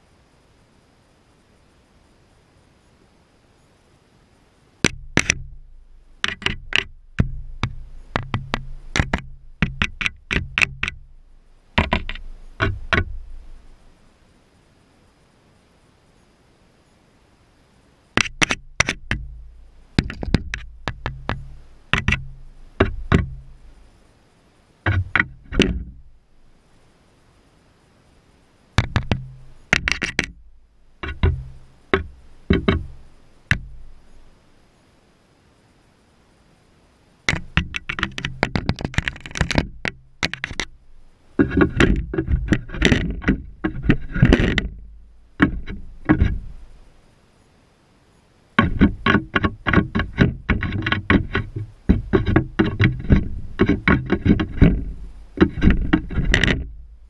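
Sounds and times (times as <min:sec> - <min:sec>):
gull beak tapping on camera: 0:06.2 - 0:11.1, 0:11.8 - 0:13.5, 0:20.0 - 0:23.5, 0:28.8 - 0:30.4, 0:31.0 - 0:33.8, 0:37.3 - 0:40.8, 0:45.4 - 0:46.6, 0:48.6 - 0:56.7.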